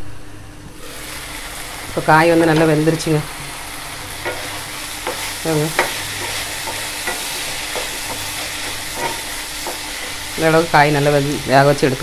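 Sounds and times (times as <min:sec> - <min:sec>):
vegetables sizzling in oil: 0:00.8 - 0:12.0
spatula scraping a pan: 0:04.1 - 0:10.6.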